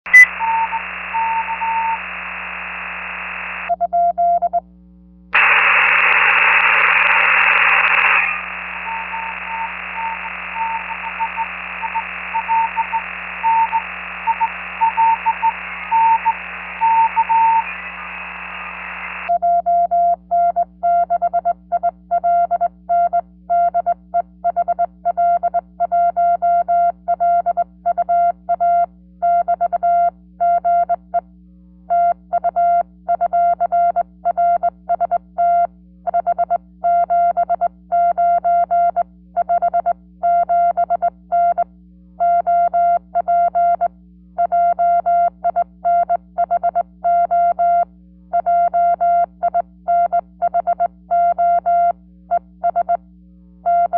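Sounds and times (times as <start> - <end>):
receiver hiss: 0.1 - 3.7, 5.2 - 19.4
faint morse code beeps: 0.1 - 4.6, 5.4 - 31.3, 31.9 - 53.0, 53.6 - 53.9
rush of static: 0.2 - 3.7, 5.4 - 19.3.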